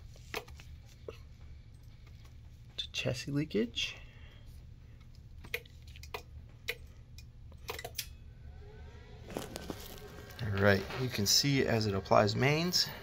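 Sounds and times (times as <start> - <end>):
low steady hum: 0.0 - 13.0
faint rising tone: 8.2 - 12.3.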